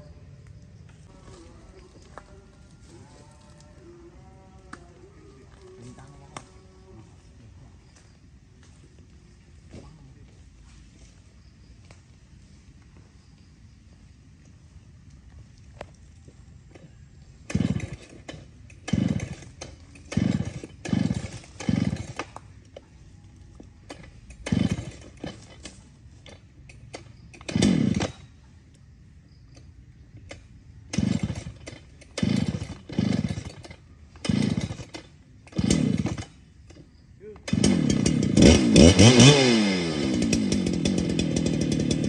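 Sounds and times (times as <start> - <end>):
chainsaw revving and idling: 1.0 - 7.3, 16.6 - 28.4, 29.5 - 42.0.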